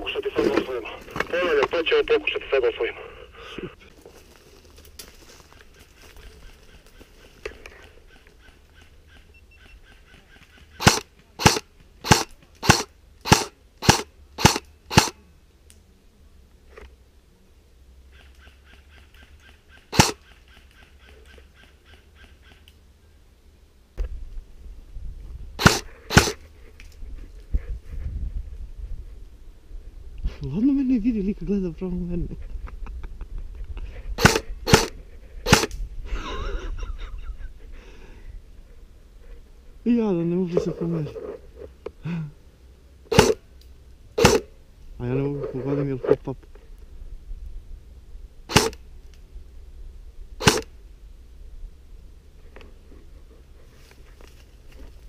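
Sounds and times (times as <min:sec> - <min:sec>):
airsoft rifle shots: 0:10.8 - 0:15.2, 0:19.8 - 0:20.3, 0:25.6 - 0:26.4, 0:34.2 - 0:35.7, 0:43.1 - 0:43.4, 0:44.2 - 0:44.5, 0:48.5 - 0:48.8, 0:50.4 - 0:50.7.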